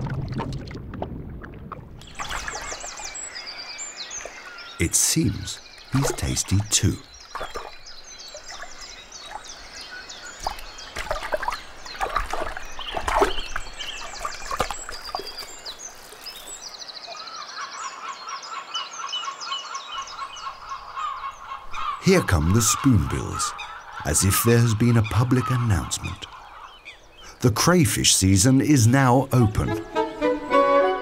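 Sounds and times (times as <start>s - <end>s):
splashes in water: 0.0s - 4.7s, 5.8s - 16.7s
small birds singing: 2.0s - 30.3s.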